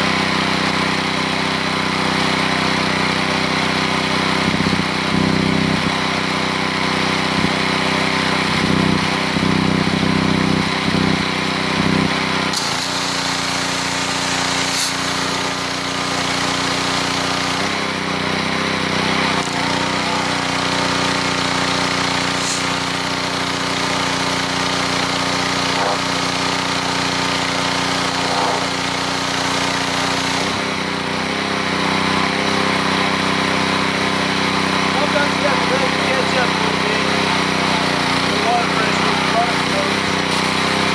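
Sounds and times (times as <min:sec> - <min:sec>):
pressure washer engine running: 0:00.0 - 0:40.9
high-pressure water spray hissing: 0:12.5 - 0:17.8, 0:19.5 - 0:30.8, 0:40.2 - 0:40.9.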